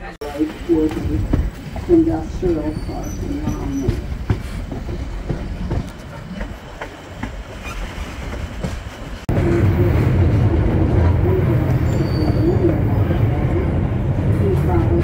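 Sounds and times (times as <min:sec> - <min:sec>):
rumble aboard moving train: 0:00.0 - 0:15.0
train wheels clicking over rail joints: 0:00.5 - 0:09.2.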